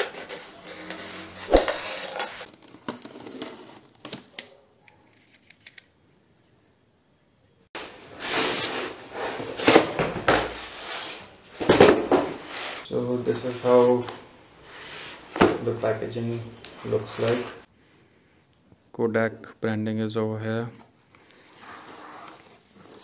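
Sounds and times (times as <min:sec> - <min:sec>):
knife slicing packing tape: 0:00.0 - 0:02.5
wrapping crinkling and tearing: 0:00.0 - 0:04.4.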